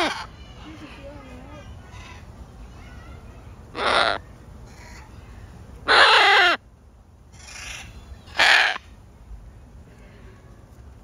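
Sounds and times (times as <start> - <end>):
macaw squawking: 3.8 - 5.1, 5.9 - 6.6, 7.4 - 8.9.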